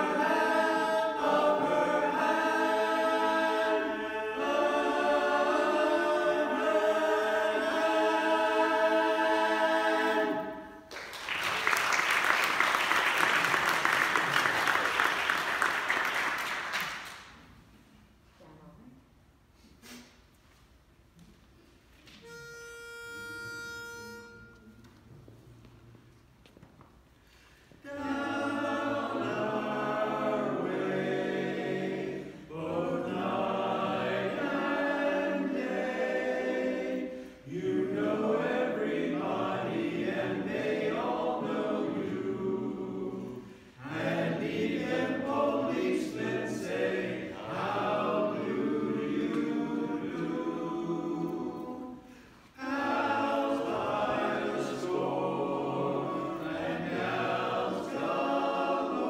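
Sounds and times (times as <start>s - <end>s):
chorus singing a cappella: 0.0s - 10.9s, 27.8s - 59.0s.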